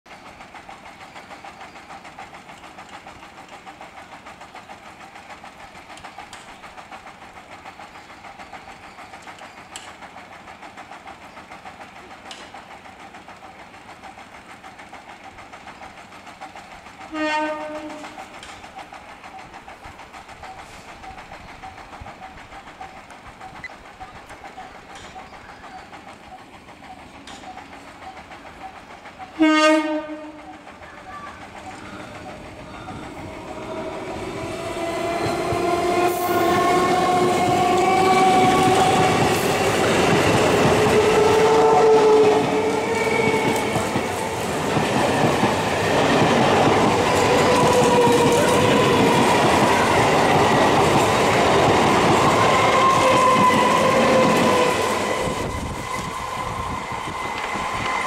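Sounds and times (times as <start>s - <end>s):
electric train humming: 0.1s - 58.0s
train horn blasts: 17.1s - 18.2s, 29.3s - 30.4s, 33.2s - 39.2s, 40.8s - 43.6s.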